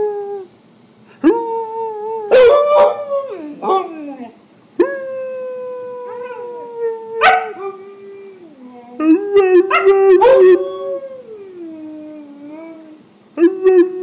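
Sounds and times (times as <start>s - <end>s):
husky howling: 2.2s - 13.0s
dog yelp: 7.2s - 7.7s.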